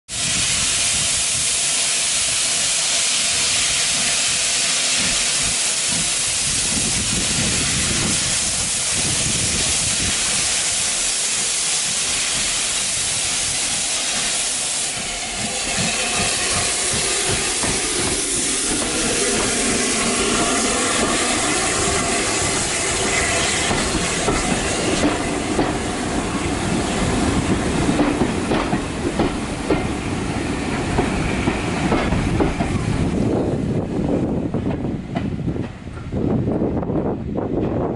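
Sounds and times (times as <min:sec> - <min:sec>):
steam locomotive hissing steam: 0:00.1 - 0:36.4
wheels clacking over rail joints: 0:14.2 - 0:30.0.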